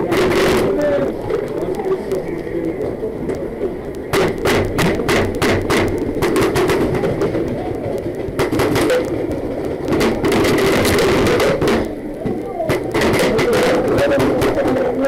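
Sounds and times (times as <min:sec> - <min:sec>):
paintballs hitting wooden wall: 0:04.1 - 0:14.9.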